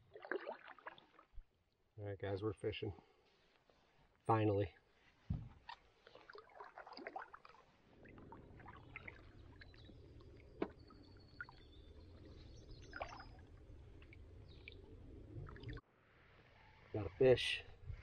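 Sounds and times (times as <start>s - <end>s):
water lapping at a canoe: 0.0s - 1.8s, 4.9s - 15.8s.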